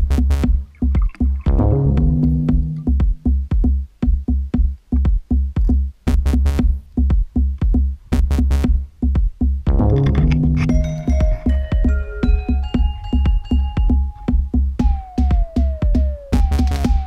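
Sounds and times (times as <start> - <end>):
electronic music with drum-machine beat: 0.0 - 17.0.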